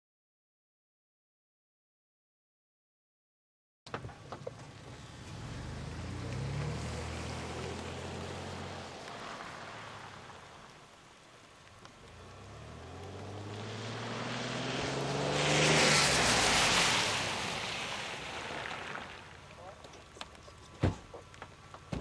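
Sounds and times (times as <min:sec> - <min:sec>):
engine braking to a stop: 0:03.9 - 0:10.4, 0:11.9 - 0:22.0
vehicle engine: 0:03.9 - 0:22.0
tyres hissing on wet road: 0:04.5 - 0:22.0.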